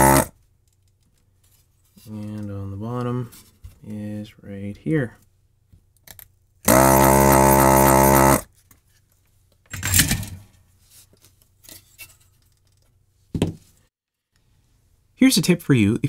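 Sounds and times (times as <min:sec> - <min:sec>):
desoldering vacuum pump buzzing: 0:00.0 - 0:00.3, 0:06.7 - 0:08.5.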